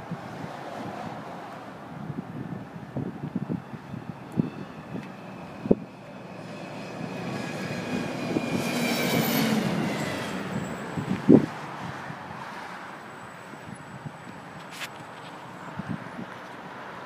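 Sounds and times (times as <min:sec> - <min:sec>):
bus passing: 0:00.0 - 0:17.0
high whine: 0:03.3 - 0:11.6.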